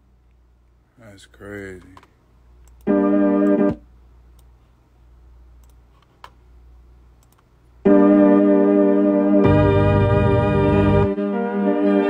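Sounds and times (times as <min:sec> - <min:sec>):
electronic keyboard chord: 0:02.8 - 0:03.8, 0:07.8 - 0:12.0
faint clicks: 0:07.2 - 0:07.5.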